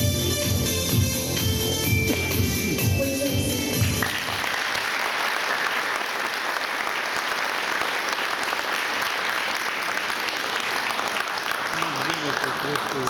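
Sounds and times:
music: 0.0s - 4.3s
audience applauding: 3.8s - 13.0s.

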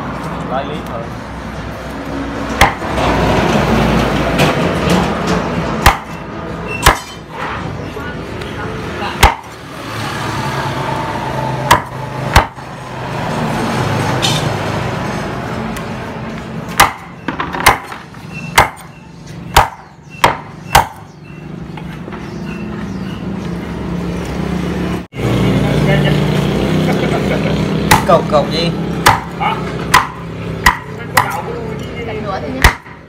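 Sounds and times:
cleaver chopping on wooden block: 2.6s - 2.9s, 5.8s - 6.2s, 6.8s - 7.2s, 9.2s - 9.5s, 11.6s - 12.6s, 16.7s - 21.1s, 27.9s - 28.2s, 29.0s - 31.5s, 32.6s - 33.0s.

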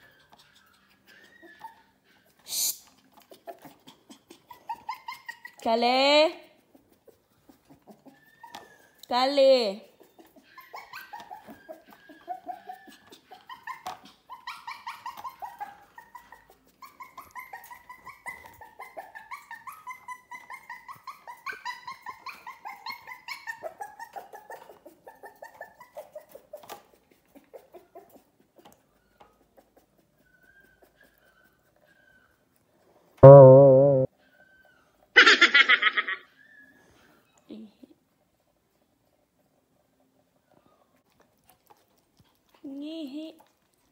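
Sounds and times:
puppy whimpering: 0.0s - 5.8s, 7.0s - 9.1s, 9.9s - 32.7s, 34.1s - 38.0s.

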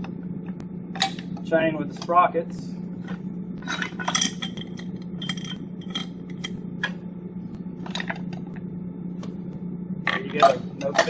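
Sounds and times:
metallic clinks and rattles: 3.7s - 6.5s.

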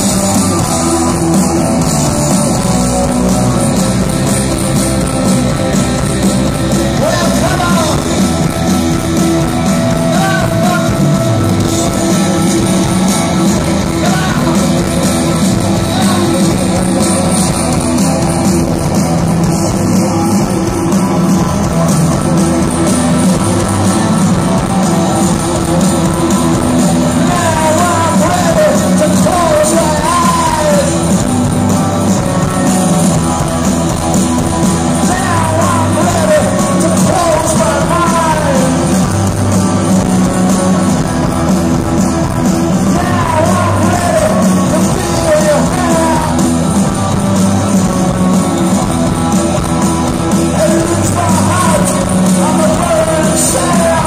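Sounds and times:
person singing: 0.0s - 8.5s, 9.4s - 18.5s, 19.4s - 32.9s, 34.6s - 39.1s, 42.8s - 46.7s, 50.3s - 54.0s
live punk rock band: 0.0s - 54.0s.

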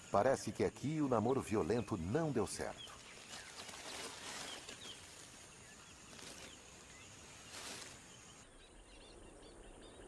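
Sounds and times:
soft hiss: 0.0s - 8.5s.

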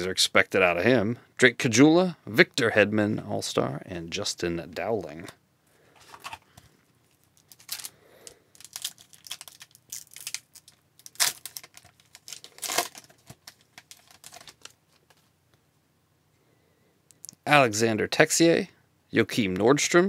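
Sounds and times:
foil wrapper crinkling and tearing: 7.1s - 15.2s.

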